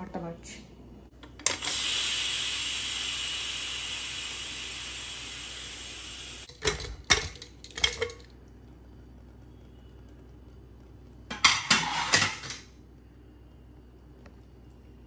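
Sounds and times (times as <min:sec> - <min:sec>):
pressure cooker steam hissing: 0:01.4 - 0:06.5.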